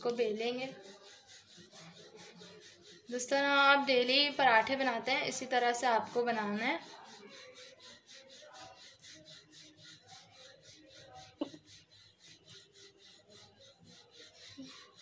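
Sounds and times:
rolling pin rolling dough: 0.0s - 15.0s.

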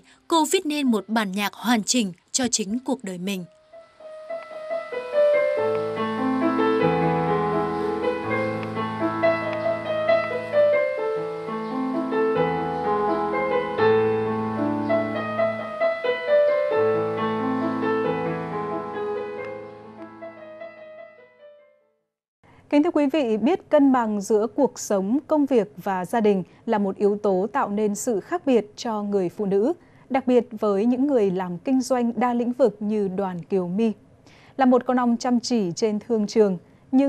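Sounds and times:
digital piano melody over chords: 3.5s - 21.8s.

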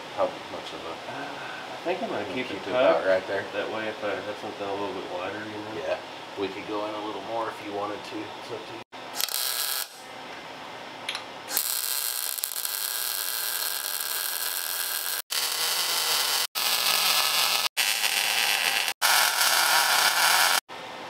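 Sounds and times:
welder crackling hiss: 9.2s - 10.0s, 11.5s - 20.6s.

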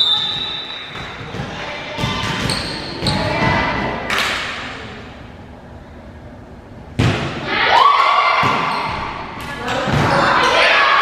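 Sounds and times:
volleyball hits: 7.0s - 7.5s, 8.3s - 10.6s
players' voices: 7.4s - 11.0s.

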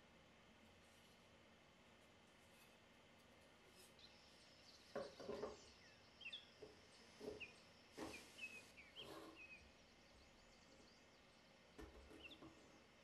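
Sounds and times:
faint bird chirps: 3.7s - 13.0s.

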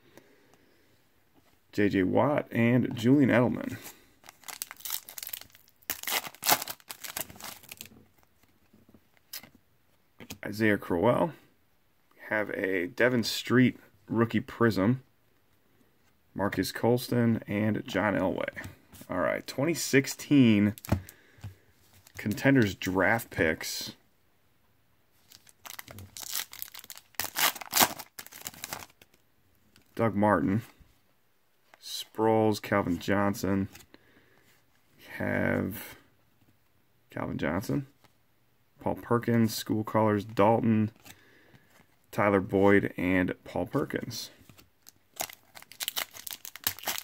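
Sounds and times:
foil wrapper tearing and crinkling: 4.3s - 7.9s, 25.4s - 28.9s, 45.1s - 47.0s.

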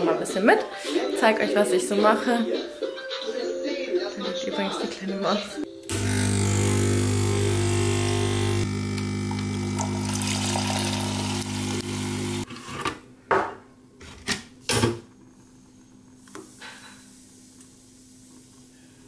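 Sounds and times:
espresso machine pump humming: 5.8s - 12.5s.

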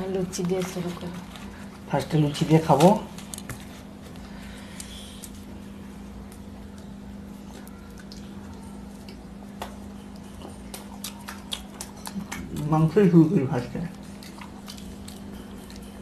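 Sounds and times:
steady low hum: 0.0s - 16.0s
chewing: 6.3s - 16.0s.

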